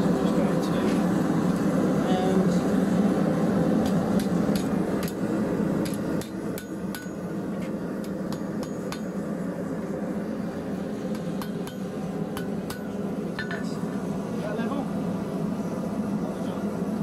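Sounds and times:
gas forge running: 0:00.0 - 0:17.0
hammer striking steel on anvil: 0:03.8 - 0:05.2, 0:05.8 - 0:07.3, 0:08.0 - 0:09.2, 0:11.1 - 0:13.6.

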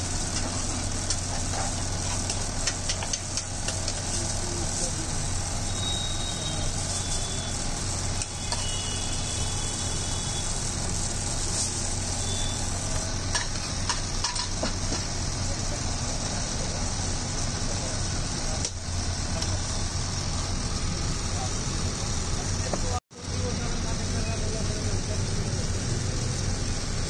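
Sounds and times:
food stall hiss: 0:00.0 - 0:27.0.

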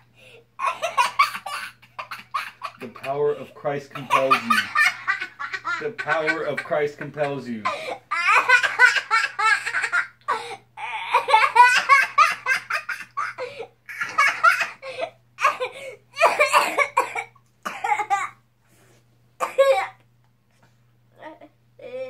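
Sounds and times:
boy laughing hard: 0:00.6 - 0:03.1, 0:04.0 - 0:16.5.

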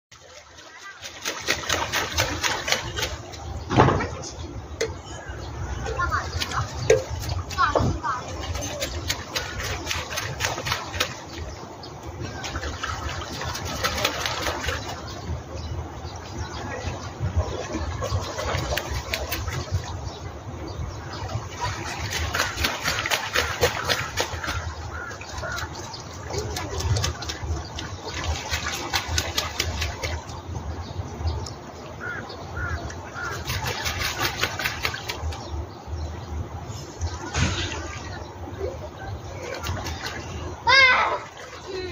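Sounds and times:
geese splashing wings on water: 0:00.1 - 0:03.6, 0:05.8 - 0:15.5, 0:16.6 - 0:20.2, 0:21.0 - 0:30.9, 0:32.0 - 0:35.7, 0:39.2 - 0:41.9.

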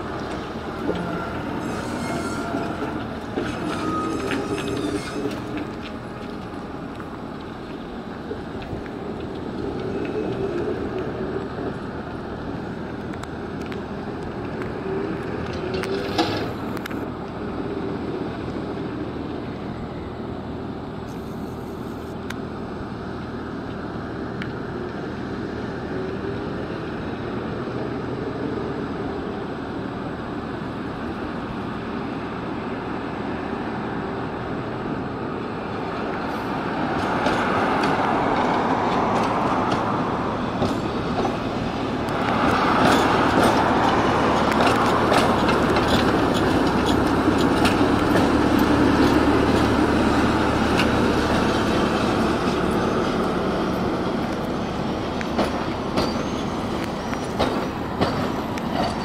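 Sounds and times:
tram humming and rolling: 0:00.0 - 0:59.0.

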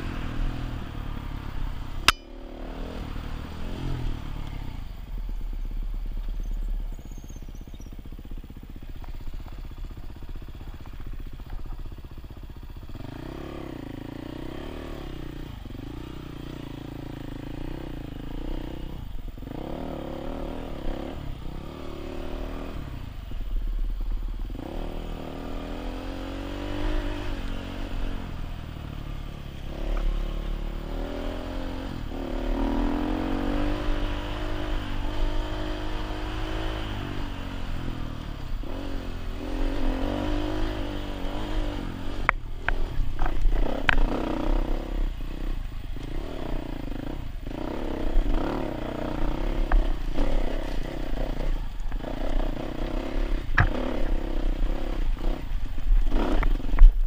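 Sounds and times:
dirt bike engine revving: 0:00.0 - 0:04.9, 0:12.8 - 0:23.4, 0:24.3 - 0:57.0.

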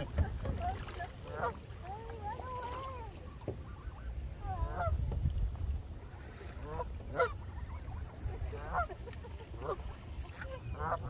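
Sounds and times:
geese honking: 0:06.6 - 0:07.9, 0:10.6 - 0:11.0.

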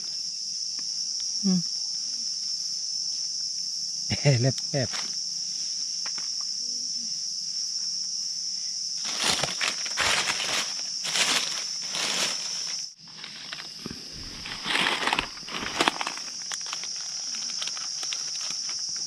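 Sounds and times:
forest insects droning: 0:00.0 - 0:19.0
footsteps through dry leaves: 0:09.0 - 0:18.8.

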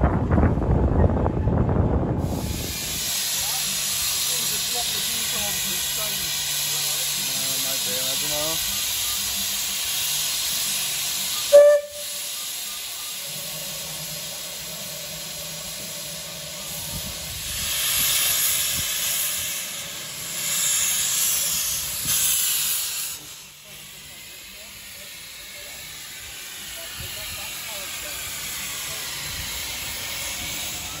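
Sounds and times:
rushes of steam: 0:01.6 - 0:31.0
steam locomotive hissing: 0:02.2 - 0:31.0
short sharp whistle toot: 0:11.3 - 0:13.2.

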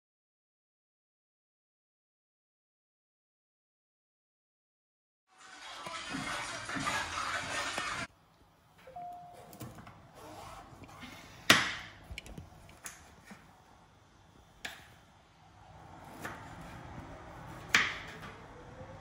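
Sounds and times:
quiet handling noise: 0:12.0 - 0:13.6.

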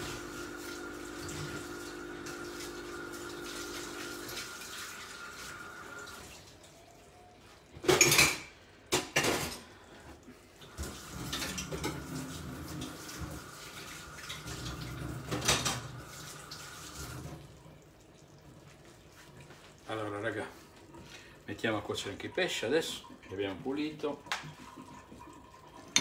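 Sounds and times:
pots and dishes clattering: 0:07.7 - 0:09.8, 0:10.8 - 0:13.3, 0:14.3 - 0:15.9, 0:24.3 - 0:26.0.

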